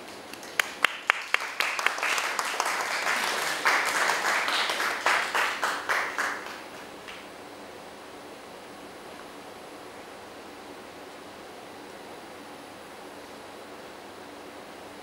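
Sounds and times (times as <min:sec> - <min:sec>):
people clapping: 0:00.0 - 0:07.3.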